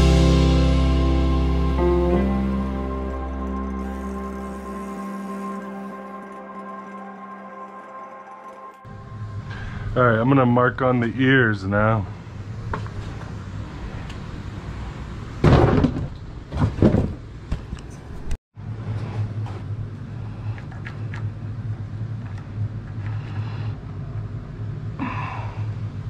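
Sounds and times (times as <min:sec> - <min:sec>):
low mechanical hum: 0:02.1 - 0:11.4, 0:17.3 - 0:26.0.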